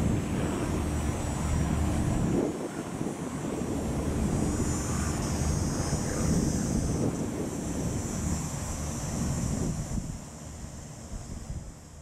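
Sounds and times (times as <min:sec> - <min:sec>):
wind buffeting microphone: 0:00.0 - 0:12.0
high-pitched hiss: 0:02.6 - 0:12.0.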